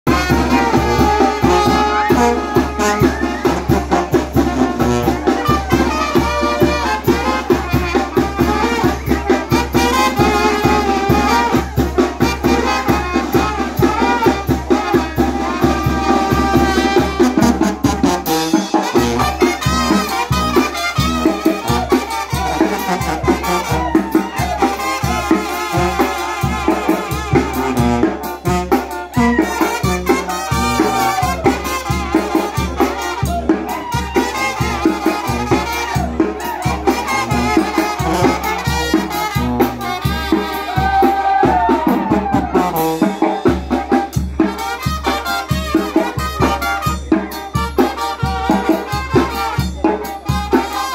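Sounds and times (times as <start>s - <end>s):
brass band playing dance music: 0.0s - 50.9s
sousaphone bass line: 0.1s - 11.6s
drum kit and timbales: 0.1s - 50.9s
trumpets: 0.1s - 50.9s.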